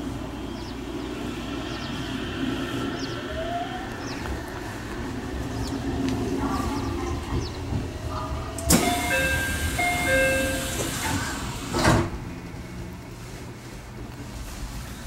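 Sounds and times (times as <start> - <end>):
loud rushing noise: 0.0 - 8.9
train running along track: 0.0 - 15.0
two-tone electronic warning: 8.7 - 11.4.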